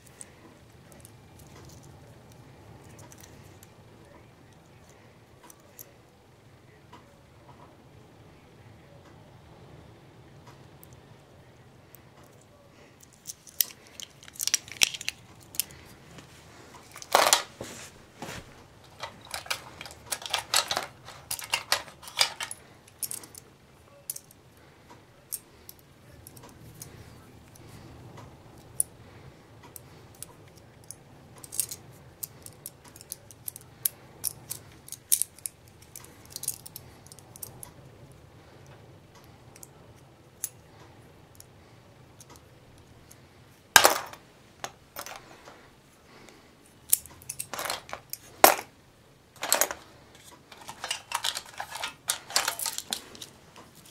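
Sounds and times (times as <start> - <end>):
small tools clinking: 18.3 - 23.4, 43.8 - 45.3, 46.9 - 48.7, 49.4 - 53.9.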